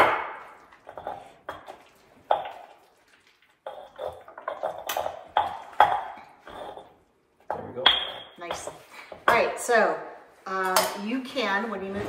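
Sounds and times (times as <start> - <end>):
utensil scraping stone bowl: 0.8 - 7.0.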